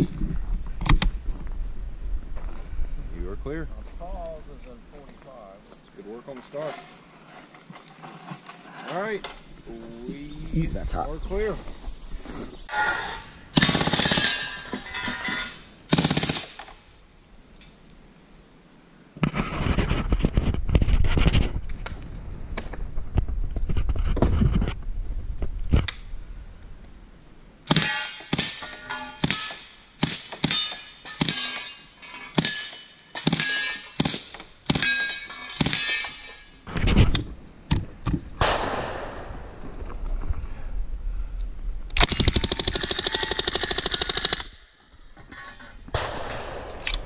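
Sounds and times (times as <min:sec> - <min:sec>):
sharp gunshots: 0:12.8 - 0:14.6, 0:15.9 - 0:16.6, 0:27.7 - 0:31.8, 0:32.4 - 0:36.1, 0:38.4 - 0:39.6, 0:42.0 - 0:44.6, 0:45.9 - 0:47.0
submachine gun rapid fire: 0:13.6 - 0:14.4, 0:15.9 - 0:16.6, 0:42.0 - 0:44.6.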